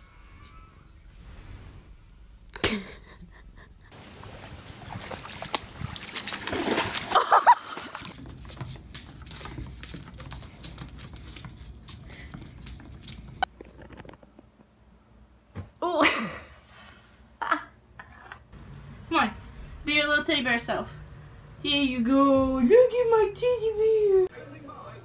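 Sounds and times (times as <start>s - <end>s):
water splashing: 4.0s - 8.9s.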